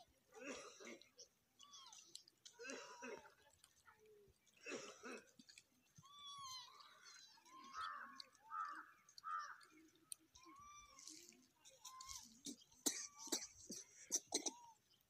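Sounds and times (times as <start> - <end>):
faint animal calls: 6.0 - 12.3.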